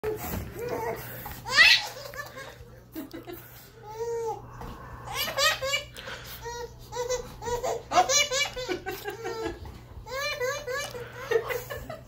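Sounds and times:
baby laughing: 0.6s - 3.2s, 5.0s - 12.0s.

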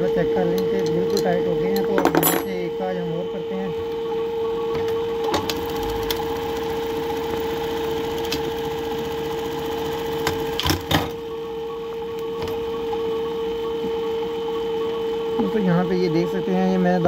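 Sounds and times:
sewing machine motor and stitching: 4.7s - 11.3s.

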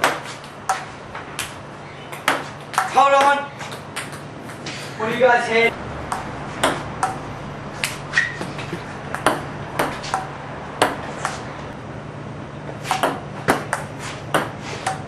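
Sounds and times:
ping-pong ball bouncing: 0.0s - 4.6s, 6.1s - 11.4s, 12.9s - 15.0s
low hum: 5.7s - 12.6s.

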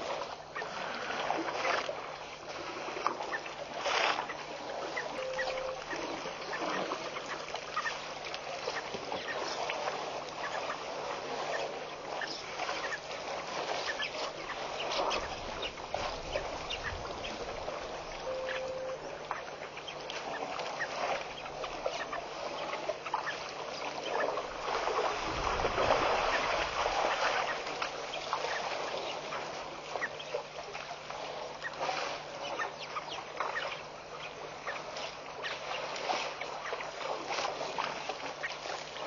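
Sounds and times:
faint steady hum: 0.0s - 39.0s
water splashing: 0.0s - 39.0s
short bird calls: 5.0s - 6.8s, 18.1s - 19.5s.

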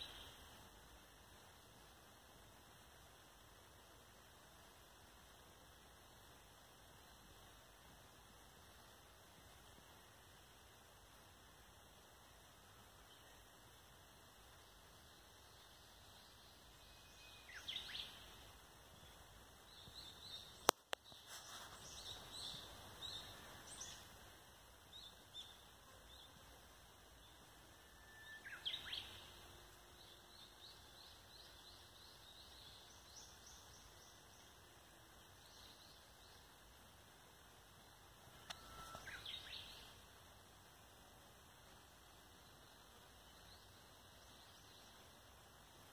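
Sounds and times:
faint birds calling: 38.3s - 40.0s
sharp click: 38.4s - 38.7s.

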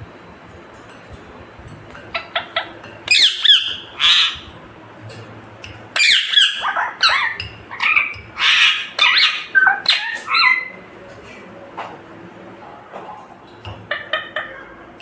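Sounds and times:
parakeet squawking: 2.1s - 4.5s, 6.0s - 10.8s.

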